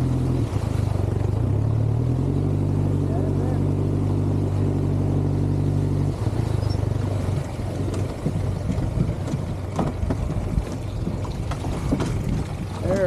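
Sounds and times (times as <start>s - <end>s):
jet boat motor running: 0.0s - 13.0s
sharp knocks against boat: 7.3s - 13.0s.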